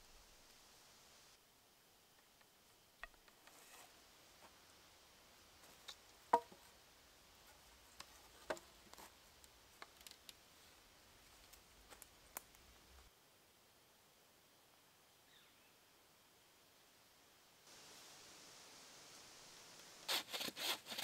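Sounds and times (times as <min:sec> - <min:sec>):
wooden poles knocking: 0:06.3 - 0:06.6.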